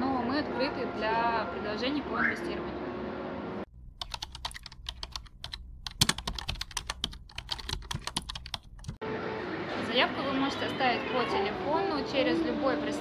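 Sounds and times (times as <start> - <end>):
keyboard key clicks: 4.0 - 9.0.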